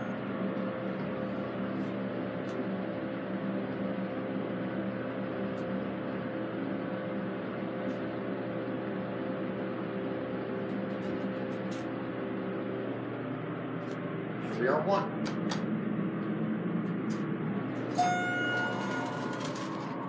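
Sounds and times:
elevator car travelling down: 16.9s - 20.0s.

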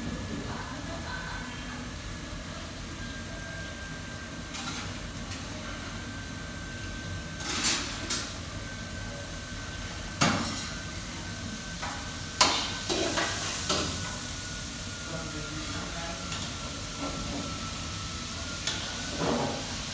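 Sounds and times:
pots and pans clattering: 7.4s - 8.3s.

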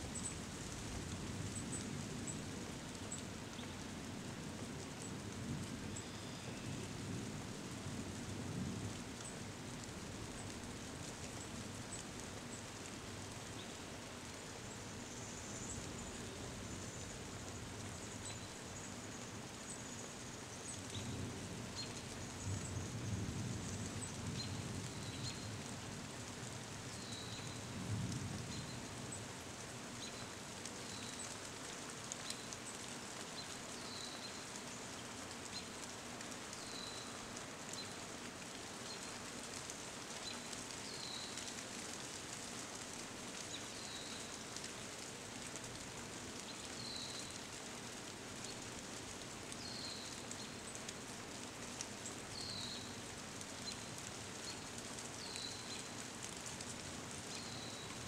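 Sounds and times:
rain falling on leaves: 0.0s - 58.0s.

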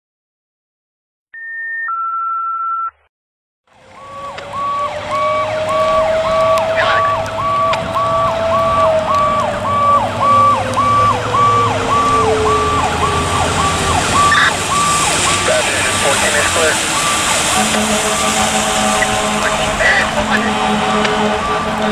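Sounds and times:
fire engine siren yelping: 3.7s - 21.9s
low siren tone: 3.7s - 21.9s
tyre hiss on wet road: 14.6s - 20.3s
two-note electronic tone: 17.0s - 21.9s.

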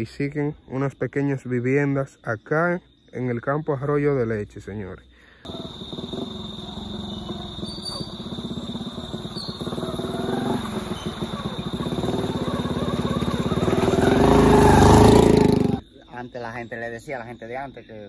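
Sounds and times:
vehicle engine running: 5.5s - 15.8s.

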